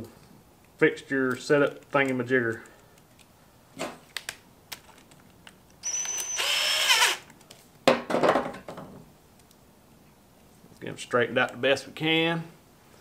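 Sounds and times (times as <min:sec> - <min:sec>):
impact driver whining: 0:05.8 - 0:07.3.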